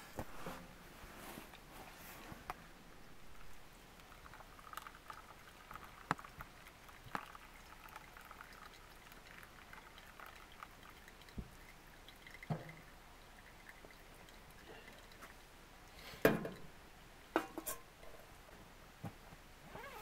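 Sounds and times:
water trickling onto coffee grounds: 3.4 - 16.8.

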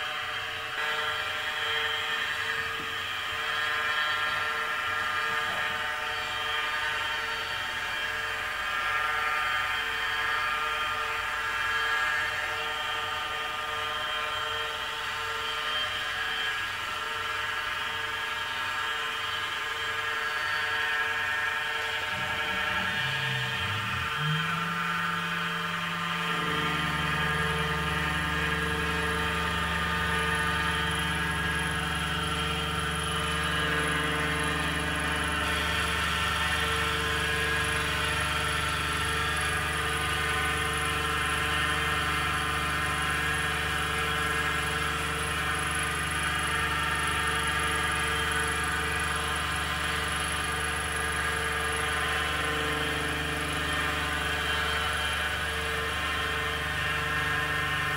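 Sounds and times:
milling machine whine: 0.0 - 57.9
deep hum: 21.8 - 43.0.

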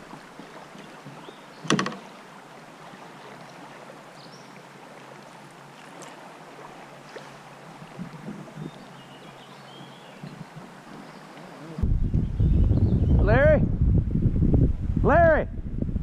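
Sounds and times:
river hiss: 0.0 - 8.0, 8.8 - 11.8.

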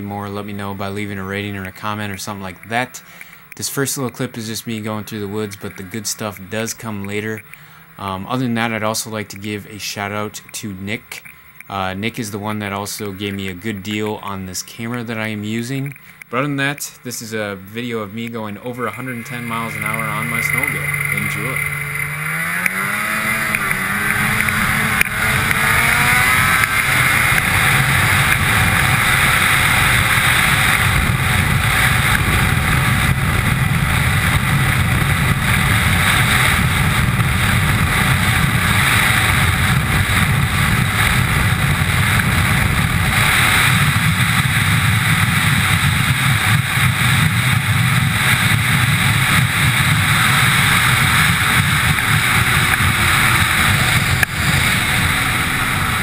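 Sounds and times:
snowmobile engine accelerating: 18.0 - 56.0.

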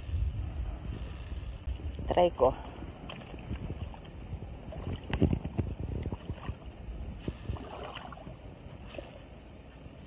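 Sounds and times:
wading splashes in shallow water: 2.9 - 9.4.

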